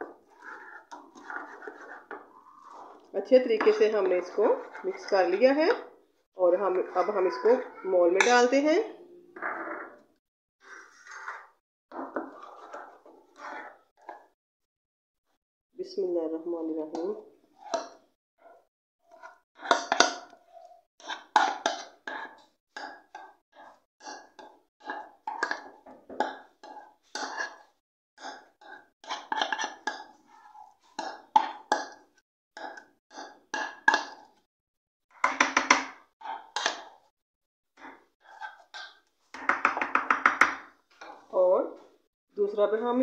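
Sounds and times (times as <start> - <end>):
spoon scraping plastic bowl: 0.0 - 5.9, 10.6 - 14.3.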